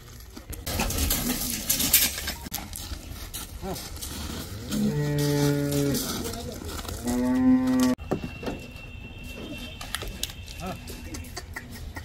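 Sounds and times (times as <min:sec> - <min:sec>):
cow mooing: 0:04.7 - 0:06.1, 0:07.0 - 0:08.0.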